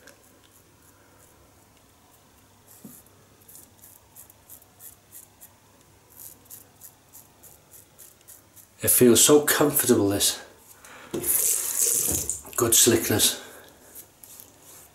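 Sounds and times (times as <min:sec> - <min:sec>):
razor scratching stubble: 0:00.0 - 0:09.5, 0:11.2 - 0:13.2.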